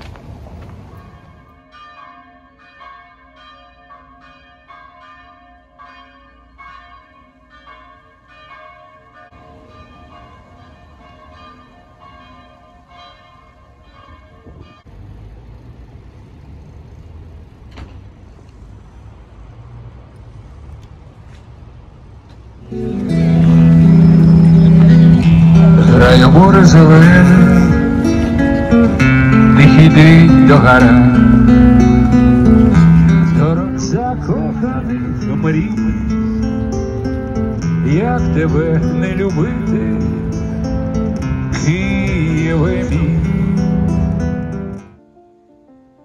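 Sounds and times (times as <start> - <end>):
street traffic hum: 0.0 - 46.0
church bells ringing: 0.9 - 14.9, 22.7 - 44.8.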